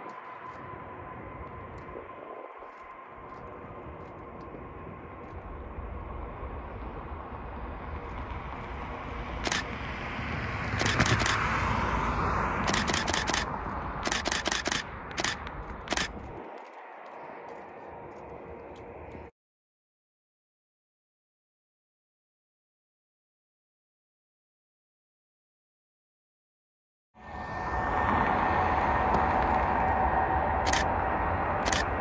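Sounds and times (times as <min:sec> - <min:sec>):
jet airliner rumble: 0:00.0 - 0:19.3, 0:27.2 - 0:32.0
camera shutter firing: 0:09.4 - 0:09.7, 0:10.8 - 0:11.5, 0:12.6 - 0:16.2, 0:31.7 - 0:31.9.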